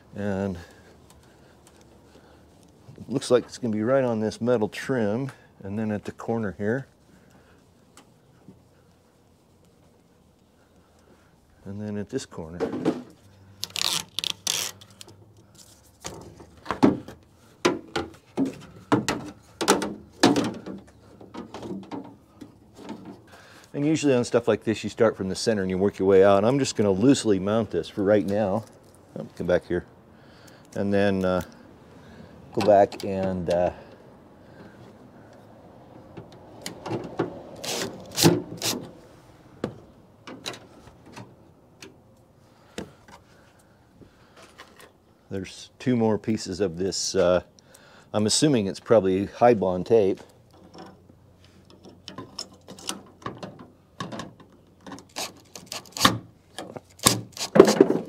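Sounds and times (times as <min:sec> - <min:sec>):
parts knocking and clacking: 0:16.0 - 0:23.3, 0:50.4 - 0:58.0.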